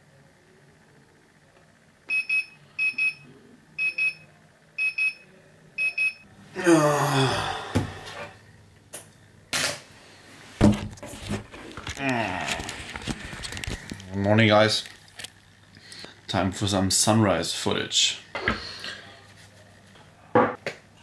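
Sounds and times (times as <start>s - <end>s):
person groaning: 6.5s - 8.4s, 12.0s - 12.8s.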